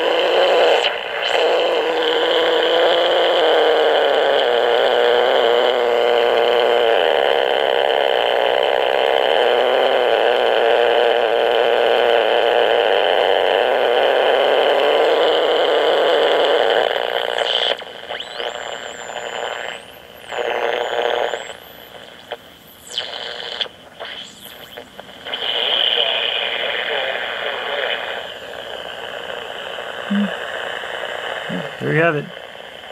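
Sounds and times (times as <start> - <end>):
radio buzzing hiss: 0.0 - 32.9
radio whistles sweeping in pitch: 17.2 - 28.7.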